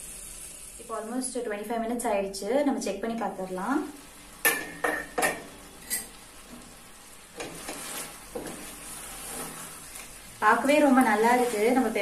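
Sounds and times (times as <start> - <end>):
chicken sizzling: 0.0 - 12.0
cookware clinking: 4.4 - 6.1
wooden spatula stirring in frypan: 4.4 - 12.0.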